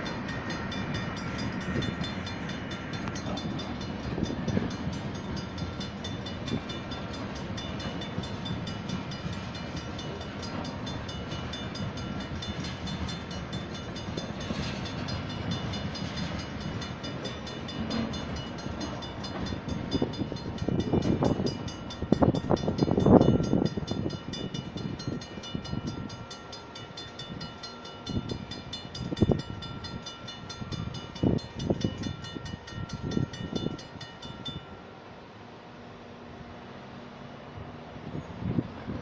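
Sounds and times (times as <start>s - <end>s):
train wheel clatter and knocking: 0.0s - 25.2s
crossing bell ringing rapidly: 0.0s - 35.0s.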